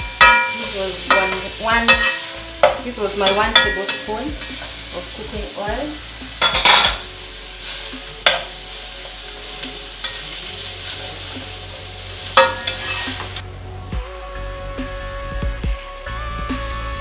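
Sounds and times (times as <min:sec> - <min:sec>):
spatula knocking against pan: 0:00.0 - 0:04.1
onions sizzling in oil: 0:00.0 - 0:13.4
music: 0:00.0 - 0:17.0.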